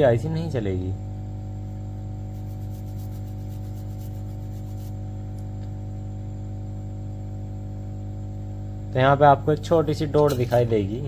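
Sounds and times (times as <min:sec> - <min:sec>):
electrical hum: 0:00.0 - 0:11.0
toothbrush scrubbing circuit board: 0:02.3 - 0:05.0.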